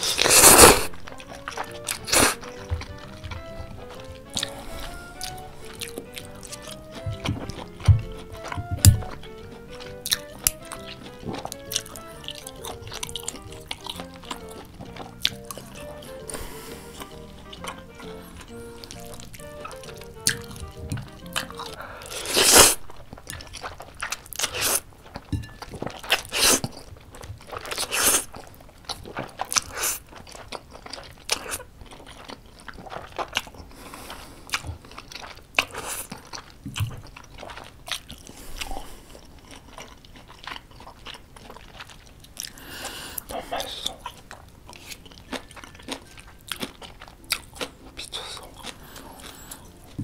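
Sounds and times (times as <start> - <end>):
slurping noodles: 0.0 - 24.9, 25.7 - 36.3
wet chewing: 0.0 - 50.0.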